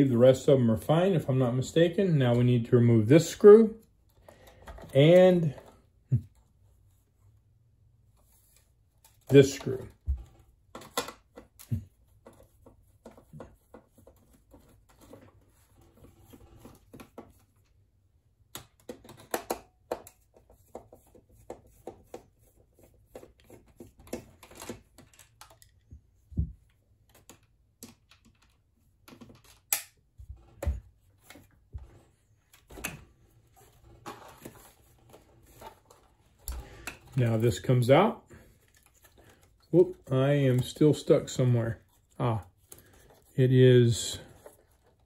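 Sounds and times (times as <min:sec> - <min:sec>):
machine parts being handled: 0:30.4 - 0:41.0.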